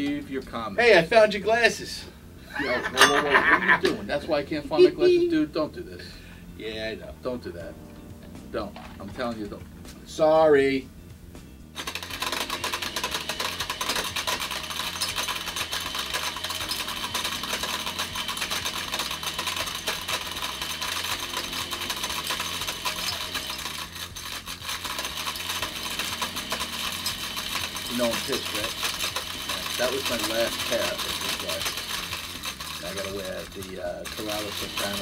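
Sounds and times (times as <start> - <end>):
blender running: 11.8 - 35.0
glasses rattling in blender jar: 11.8 - 35.0.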